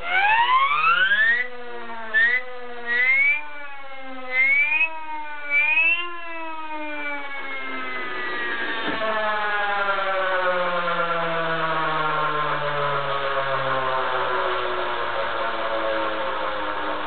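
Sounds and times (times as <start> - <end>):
rotor whine falling in pitch: 0.0 - 1.5, 2.1 - 3.5, 4.2 - 9.8.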